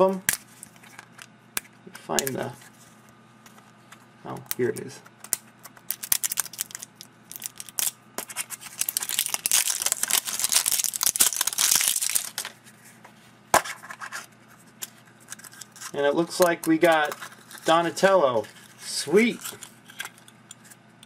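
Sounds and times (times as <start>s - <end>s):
plastic wrap crinkling: 5.8s - 12.6s.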